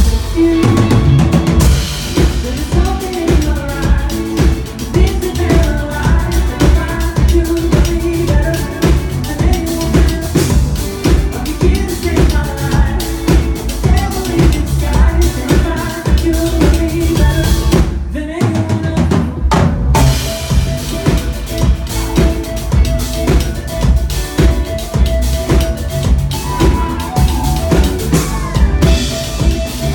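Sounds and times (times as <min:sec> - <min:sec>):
drum kit beat: 0:00.0 - 0:29.9
live band playing: 0:00.0 - 0:29.9.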